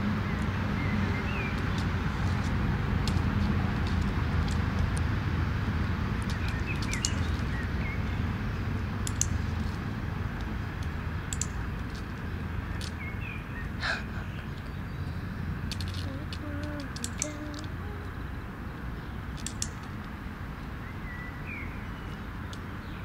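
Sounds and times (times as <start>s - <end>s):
low outdoor rumble: 0.0s - 23.0s
clicker clicks: 15.8s - 17.7s.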